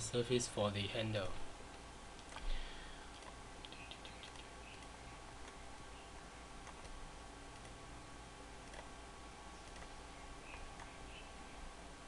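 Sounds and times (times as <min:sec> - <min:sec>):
low steady hum: 0:00.0 - 0:12.0
computer mouse clicks: 0:01.7 - 0:05.6, 0:06.6 - 0:07.8, 0:08.6 - 0:08.9, 0:09.6 - 0:11.0.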